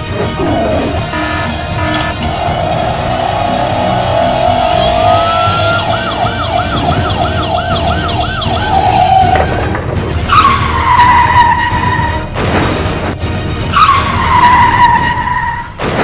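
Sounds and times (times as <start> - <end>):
tire screech: 0.2 - 7.0, 8.4 - 12.9, 13.6 - 15.8
toy electronic siren yelping: 3.8 - 9.4.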